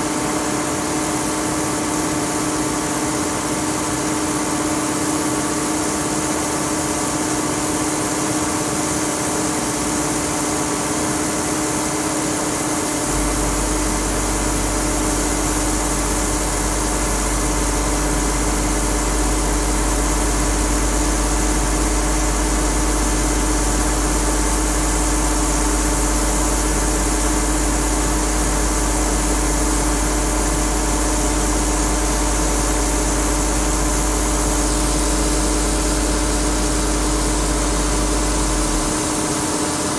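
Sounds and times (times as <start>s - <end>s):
conveyor machinery drone: 0.0s - 39.9s
deep low hum: 13.0s - 39.7s.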